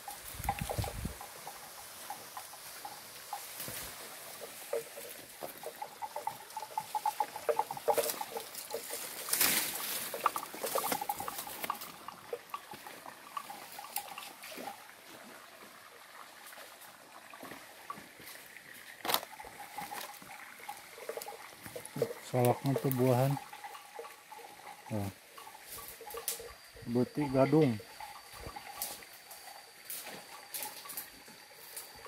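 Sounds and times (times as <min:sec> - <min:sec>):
stream trickling over stones: 0:00.0 - 0:32.0
footsteps crunching through dry leaves: 0:07.8 - 0:12.1.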